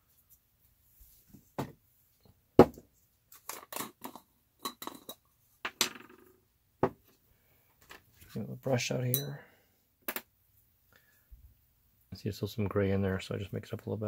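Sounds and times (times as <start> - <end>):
tools knocking on wooden workbench: 1.6 - 1.8, 2.6 - 2.8, 6.8 - 7.0.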